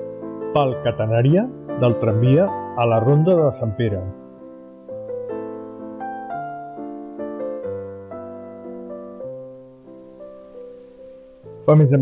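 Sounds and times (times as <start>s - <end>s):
soft piano notes: 0.0s - 12.0s.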